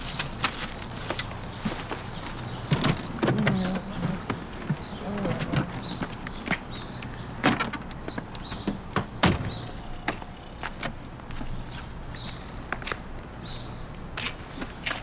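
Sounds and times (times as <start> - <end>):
clicks and knocks of bags: 0.0 - 8.8
street hum: 0.0 - 15.0
car door opening and shutting: 7.4 - 11.0.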